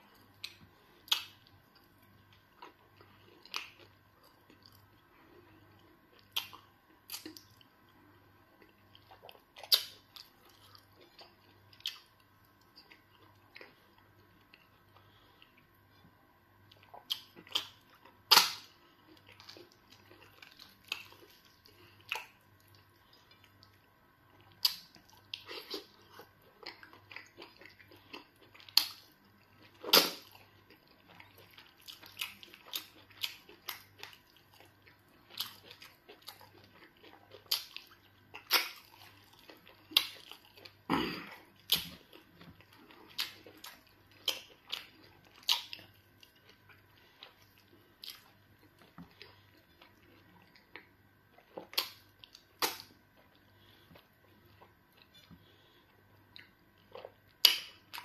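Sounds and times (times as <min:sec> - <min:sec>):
wet chewing clicks and smacks: 0:16.7 - 0:40.8, 0:41.6 - 0:55.6, 0:56.2 - 0:58.0.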